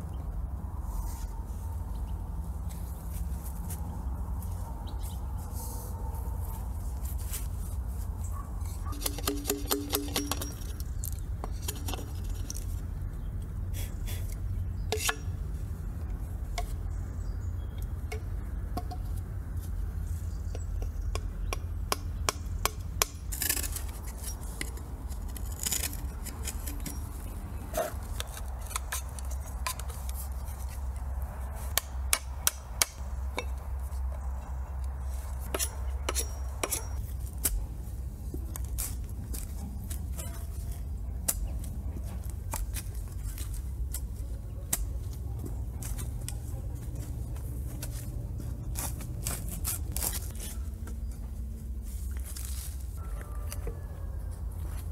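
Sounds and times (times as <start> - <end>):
steady low rumble: 0.0 - 8.9
sharp clicks knocks and clinks: 8.9 - 10.9.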